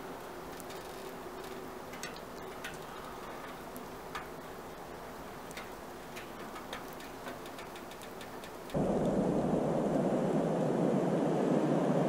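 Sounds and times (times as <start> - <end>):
soup simmering in a pot: 0.0 - 8.8
small pops and ticks: 0.2 - 9.2.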